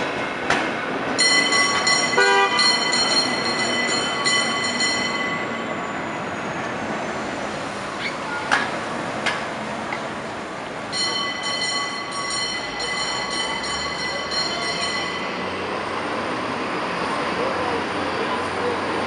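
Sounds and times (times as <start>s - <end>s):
rumble of passing cable car: 0.0s - 19.0s
street traffic: 0.0s - 19.0s
cable car bell clanging: 1.1s - 6.0s, 10.9s - 16.1s.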